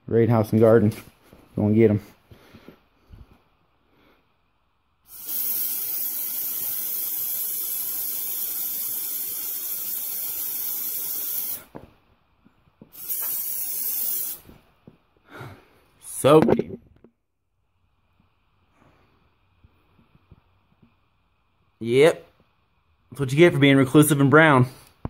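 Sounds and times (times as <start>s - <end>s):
aerosol can spraying: 5.1s - 11.7s, 12.9s - 14.6s.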